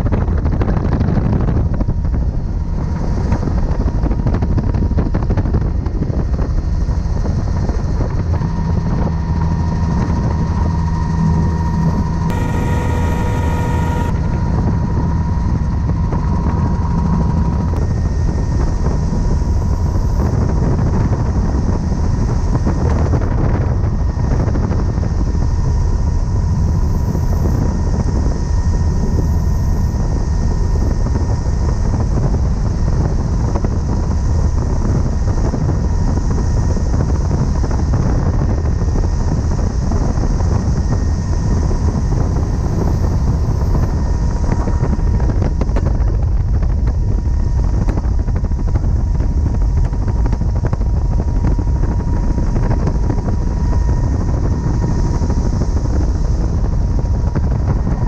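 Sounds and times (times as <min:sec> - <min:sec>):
faint steady whine: 0:00.0 - 0:58.0
helicopter rotor and engine noise: 0:00.0 - 0:58.0.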